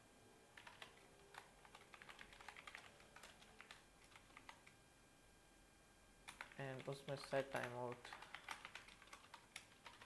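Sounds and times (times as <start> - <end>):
faint keyboard typing: 0.5 - 4.8, 6.2 - 10.0.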